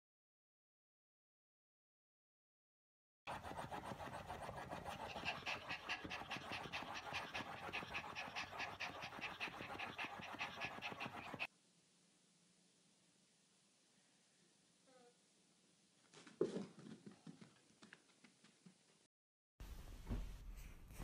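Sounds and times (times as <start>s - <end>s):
dog panting fast: 3.3s - 11.5s.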